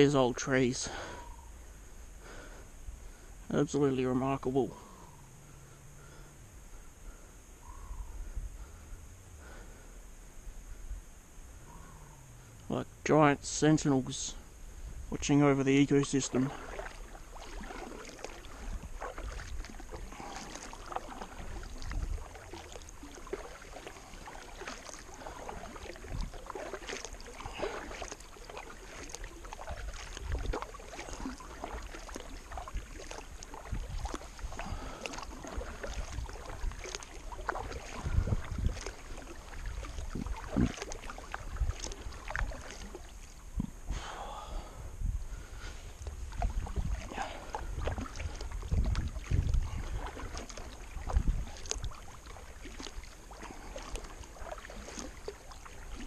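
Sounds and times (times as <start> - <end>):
wind rumbling on microphone: 4.6 - 56.0
paddle splashing in water: 15.3 - 44.6, 45.4 - 56.0.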